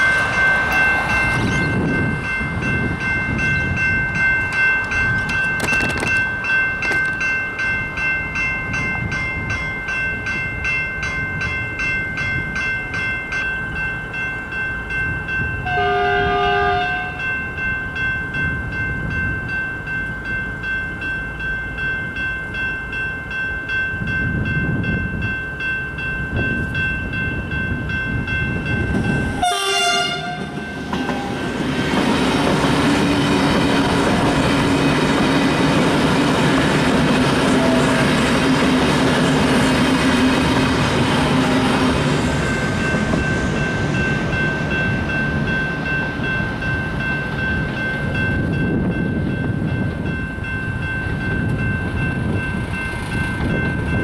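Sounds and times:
gusty wind: 0:00.0 - 0:54.0
train horn blast: 0:15.6 - 0:17.2, 0:29.2 - 0:31.4.

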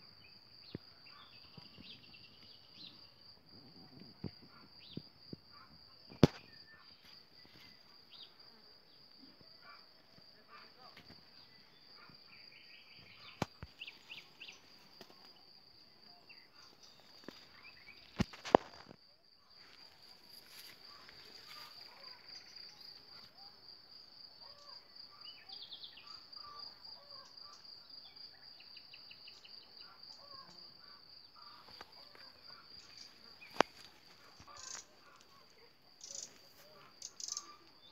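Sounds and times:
insect trilling: 0:29.8 - 0:37.9.

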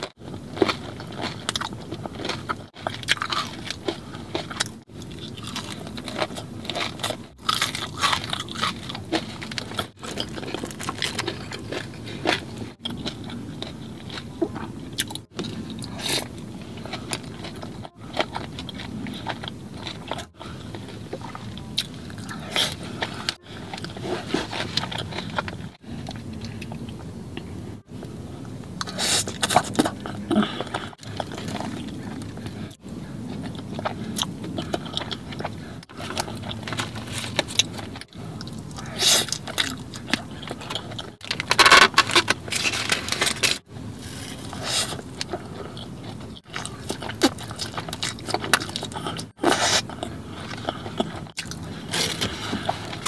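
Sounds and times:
crunchy bites: 0:00.0 - 0:26.7
person chewing: 0:00.0 - 0:53.0.

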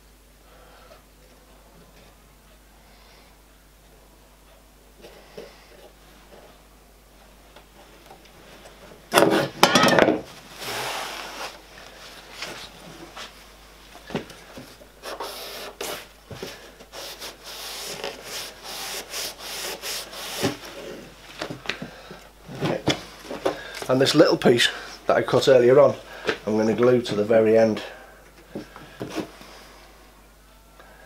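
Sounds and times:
wood rubbing and scraping: 0:14.1 - 0:21.8.

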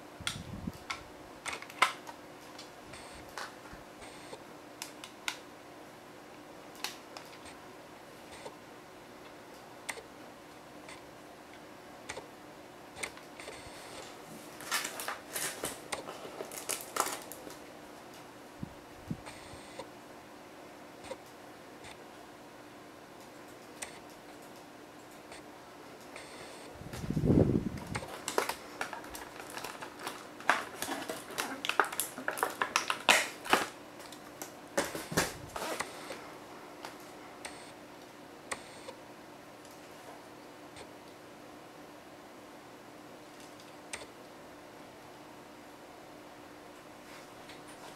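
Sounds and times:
cardboard rustling and crackling: 0:14.0 - 0:17.6, 0:27.8 - 0:35.8.

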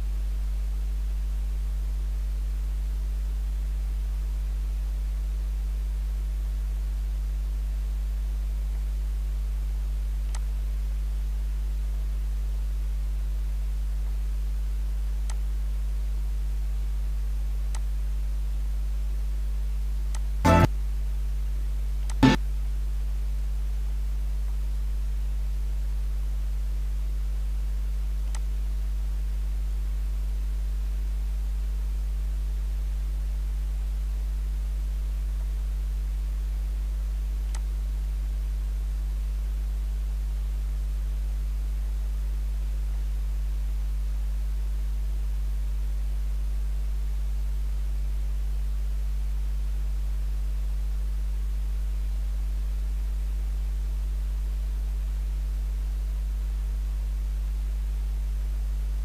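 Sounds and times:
low electrical hum: 0:00.0 - 0:59.0
faint clicks: 0:28.2 - 0:28.5.

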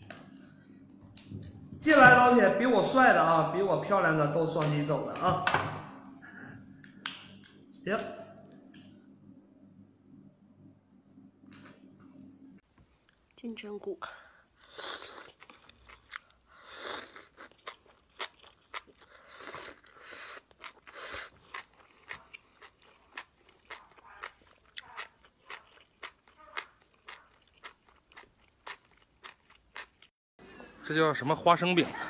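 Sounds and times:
slurping: 0:14.6 - 0:27.8
wet chewing and crunching: 0:14.6 - 0:30.1.

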